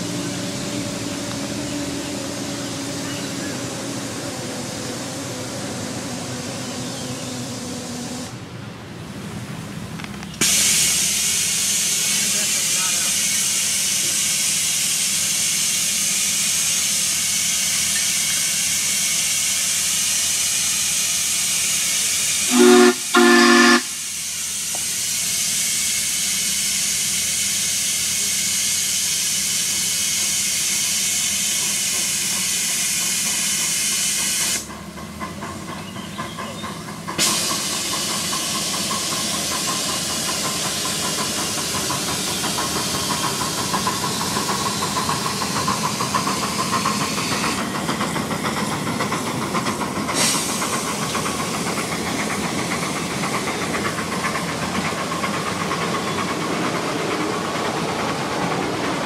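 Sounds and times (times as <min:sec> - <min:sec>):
steam hissing: 0:00.0 - 0:08.5, 0:10.4 - 0:59.0
rhythmic steam chuffing: 0:00.0 - 0:09.0, 0:10.4 - 0:59.0
steam whistle blasts: 0:22.4 - 0:24.4.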